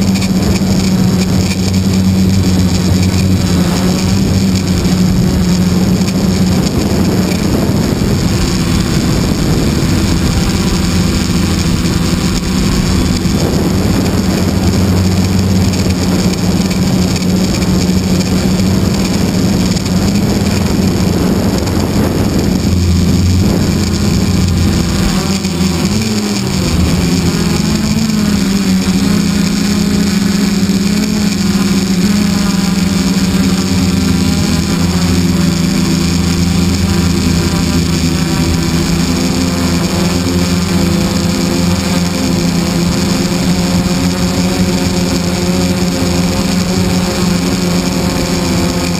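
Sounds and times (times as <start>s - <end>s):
drone propellers buzzing: 0.0s - 48.9s.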